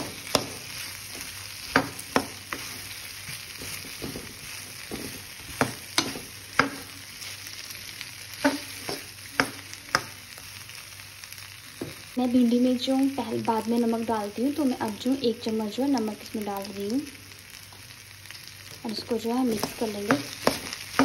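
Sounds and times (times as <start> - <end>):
vegetables sizzling in oil: 0.0 - 21.0
utensil clacking on pan: 3.6 - 6.9, 19.5 - 21.0.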